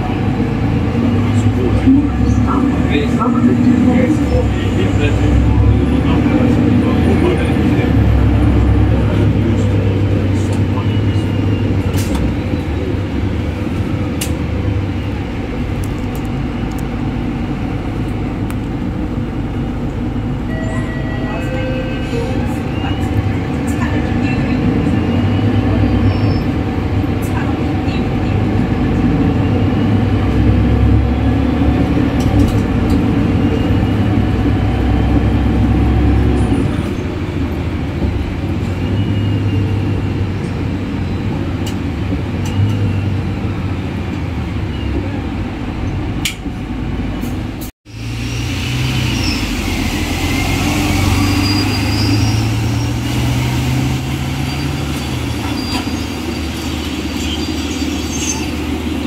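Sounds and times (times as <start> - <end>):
bus engine with gearbox whistling: 0.0 - 59.0
bus pulling away: 0.0 - 59.0.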